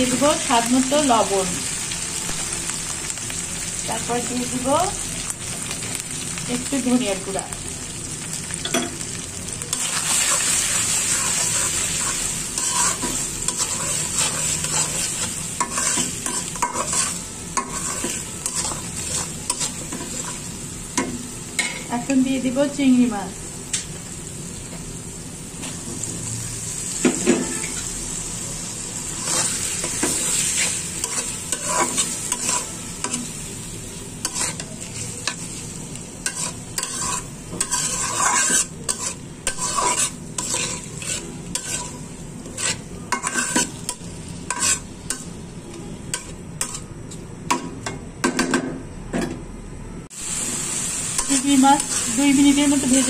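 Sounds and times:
shrimp sizzling in oil: 0:00.0 - 0:47.8, 0:50.1 - 0:53.0
spatula scraping a wok: 0:09.7 - 0:20.6, 0:29.0 - 0:46.9, 0:51.0 - 0:53.0.

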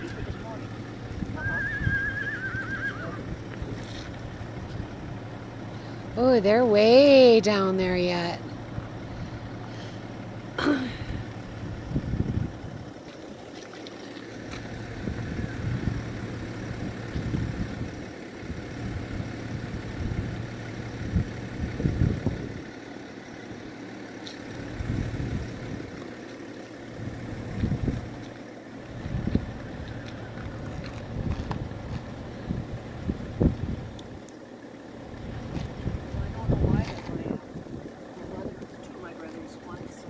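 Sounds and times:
car engine idling: 0:00.0 - 0:40.0
wind buffeting microphone: 0:11.7 - 0:12.9.

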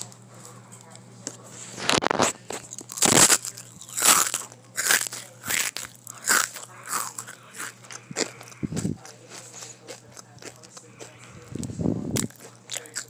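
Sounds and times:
chips crunching: 0:00.0 - 0:13.0.

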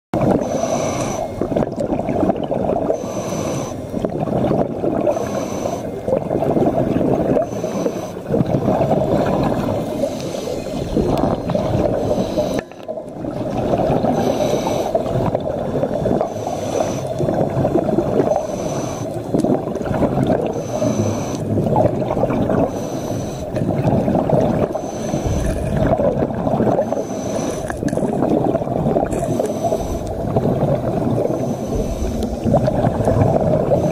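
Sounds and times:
bubbles gurgling underwater: 0:00.2 - 0:33.9
regulator breathing hiss: 0:03.0 - 0:03.9, 0:05.1 - 0:05.9, 0:07.4 - 0:08.2, 0:12.0 - 0:12.8, 0:14.1 - 0:15.0, 0:16.3 - 0:17.2, 0:18.3 - 0:19.2, 0:20.5 - 0:21.5, 0:22.7 - 0:23.5, 0:24.7 - 0:25.6, 0:26.8 - 0:27.8, 0:29.3 - 0:30.1, 0:31.3 - 0:32.4.

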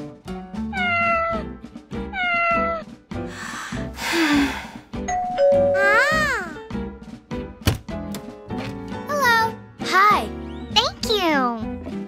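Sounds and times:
light background music: 0:00.0 - 0:12.0
cat meowing: 0:00.7 - 0:01.5, 0:02.1 - 0:02.8.

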